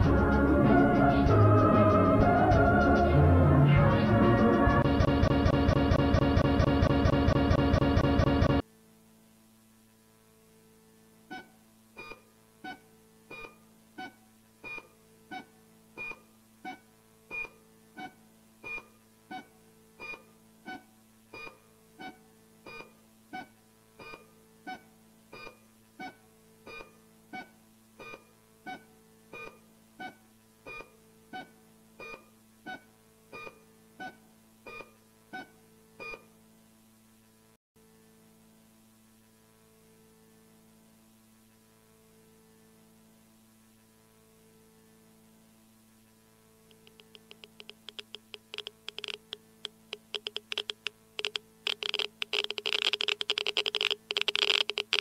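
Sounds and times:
steady low hum: 0.0 - 8.8
short electronic beeps: 46.8 - 55.0.

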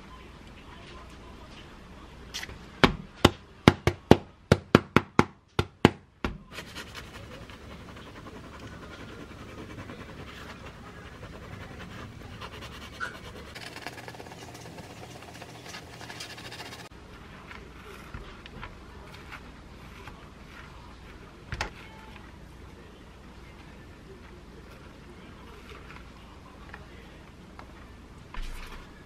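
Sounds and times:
knife sawing bread: 6.5 - 16.9.

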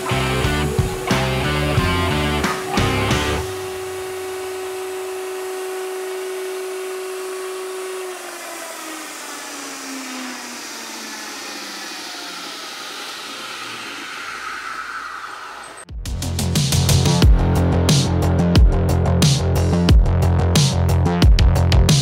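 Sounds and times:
grinder motor humming and spinning down: 0.0 - 15.8.

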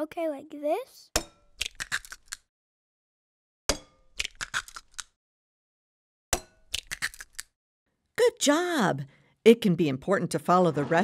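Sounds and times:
eggs cracking into a bowl: 1.4 - 2.5, 3.7 - 5.2, 6.4 - 7.5.

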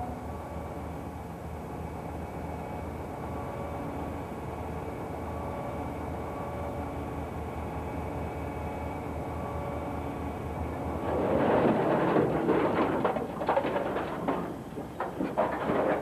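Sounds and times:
rocks tumbling from dump bed: 10.8 - 16.0.

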